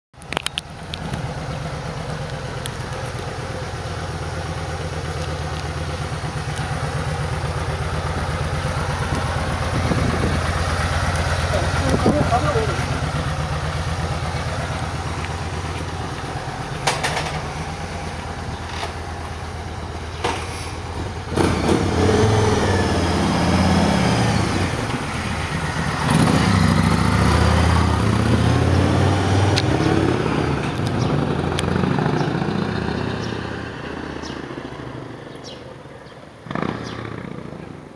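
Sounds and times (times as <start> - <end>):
motorcycle engine idling: 0.3 - 21.4
motorcycle revving and passing: 0.4 - 37.9.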